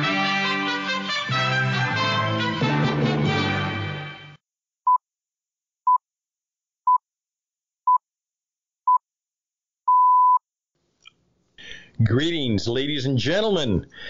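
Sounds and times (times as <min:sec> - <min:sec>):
time signal beeps: 0:09.9 - 0:10.4.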